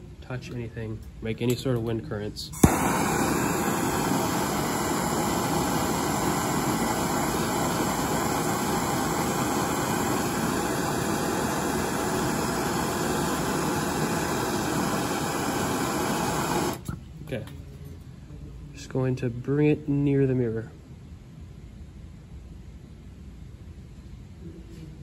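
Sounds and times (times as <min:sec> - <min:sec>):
blowtorch flame hissing: 0:02.6 - 0:17.0.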